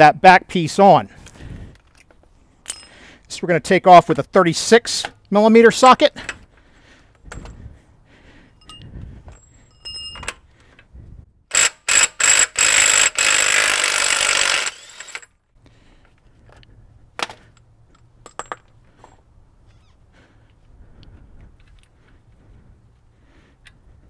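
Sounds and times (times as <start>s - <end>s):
impact wrench hammering: 11.5s - 15.3s.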